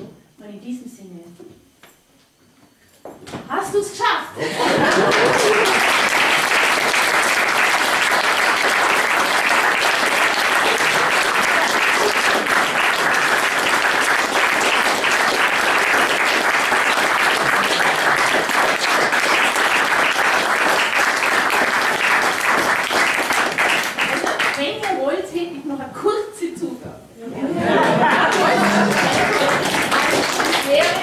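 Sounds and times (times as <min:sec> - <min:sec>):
audience applauding: 0:04.4 - 0:24.9, 0:27.6 - 0:31.0.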